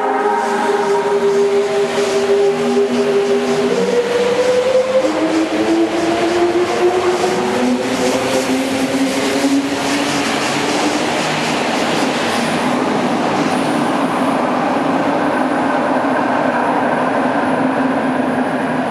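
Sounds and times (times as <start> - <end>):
train rumbling: 0.0 - 18.9.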